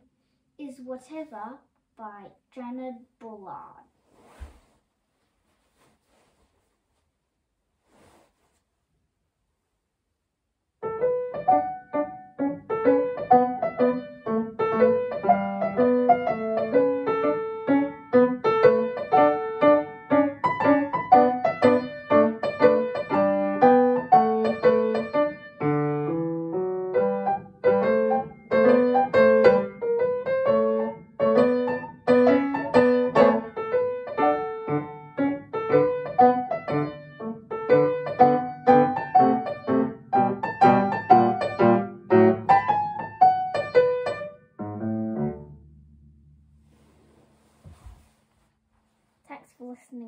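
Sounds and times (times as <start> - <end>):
upright piano playing: 10.8 - 46.5.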